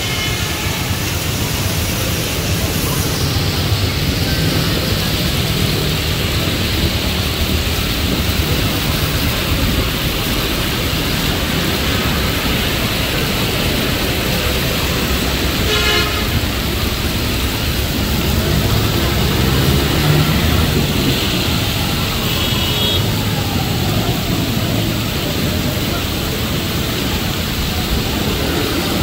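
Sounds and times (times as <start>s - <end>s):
heavy rain pouring: 0.0s - 29.0s
tyres hissing through water: 0.0s - 29.0s
vehicle engines running: 0.0s - 29.0s
vehicle horn toot: 15.6s - 16.4s, 22.2s - 23.0s.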